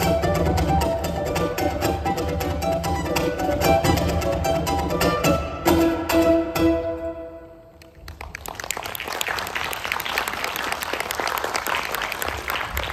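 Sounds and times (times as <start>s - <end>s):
audience applause: 7.9s - 12.9s.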